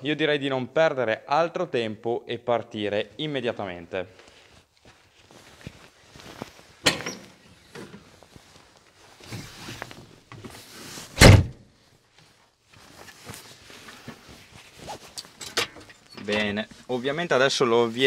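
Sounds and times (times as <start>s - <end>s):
shuffling and rustling: 4.2s - 11.2s, 11.8s - 18.0s
tractor cab door shutting: 6.8s - 8.0s, 11.2s - 11.6s.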